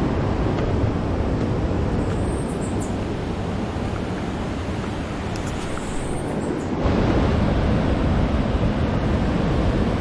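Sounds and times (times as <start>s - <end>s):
wind noise on microphone: 0.0s - 10.0s
surf rushing: 3.0s - 10.0s.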